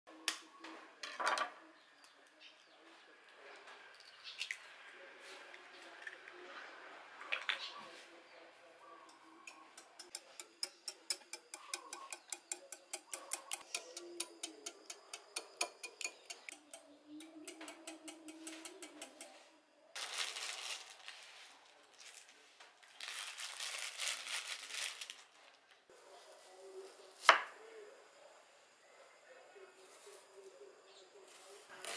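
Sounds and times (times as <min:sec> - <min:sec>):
whisk clicking against glass bowl: 0:09.6 - 0:19.3.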